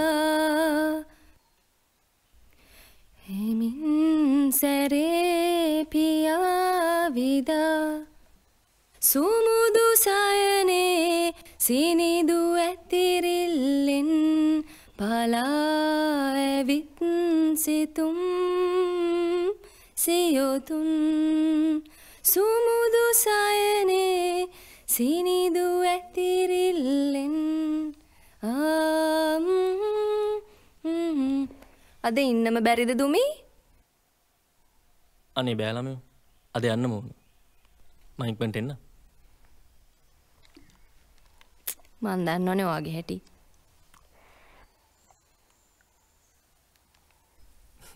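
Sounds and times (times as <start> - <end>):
singer breathing: 2.5 - 3.2, 14.6 - 15.0, 21.9 - 22.2, 24.5 - 24.9, 44.1 - 44.8.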